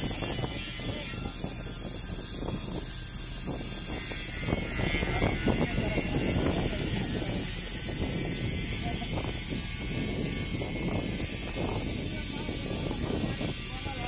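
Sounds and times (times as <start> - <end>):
heavy machinery engine drone: 0.0 - 14.0.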